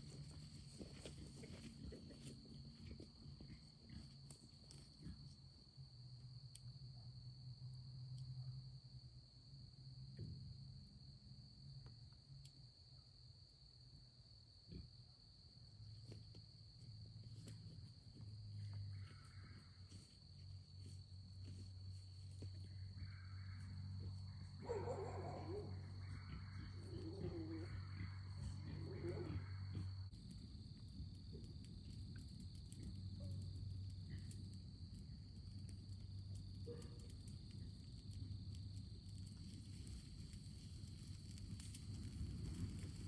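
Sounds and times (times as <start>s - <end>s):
crickets and insects chirring: 0.0s - 43.0s
animal giving rough calls: 24.3s - 30.1s.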